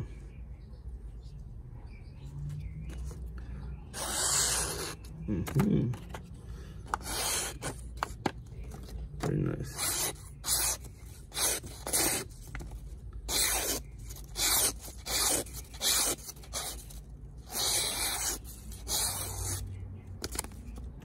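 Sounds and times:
knife blade slicing paper: 0:04.0 - 0:05.1, 0:13.3 - 0:19.6.

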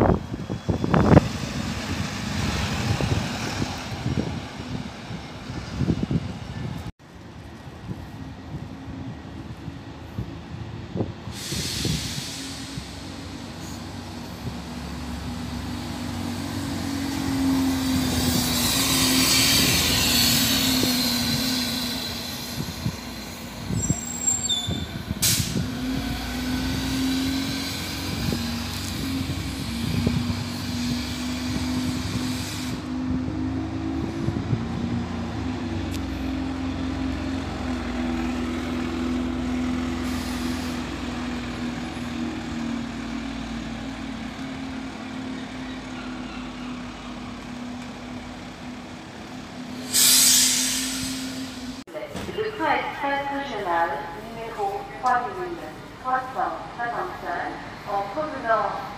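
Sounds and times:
bus engine passing by: 0:00.0 - 0:51.9
brief high squeals: 0:23.7 - 0:25.0.

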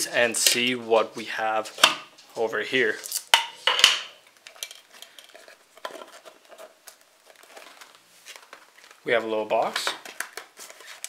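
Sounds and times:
plastic case and box handled: 0:04.4 - 0:11.0.

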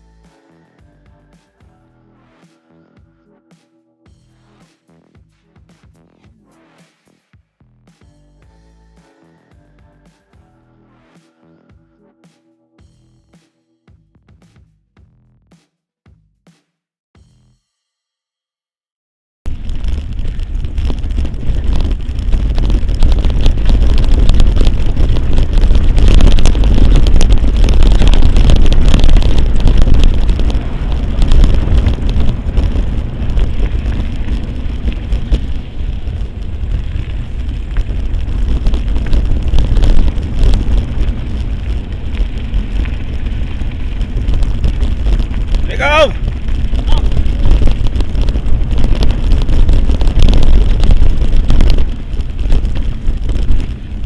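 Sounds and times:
wind buffeting microphone: 0:19.5 - 0:54.0
bike rattling and clicking: 0:24.7 - 0:39.5.

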